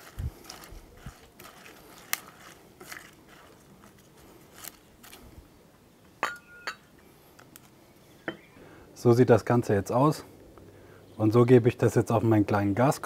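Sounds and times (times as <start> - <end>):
leaves crackling and rustling: 0.0 - 5.6.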